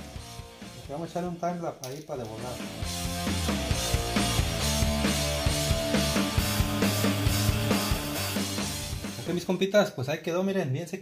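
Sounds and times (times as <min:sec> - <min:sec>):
drums keeping a steady beat: 0:02.4 - 0:09.6
bass line: 0:02.6 - 0:09.5.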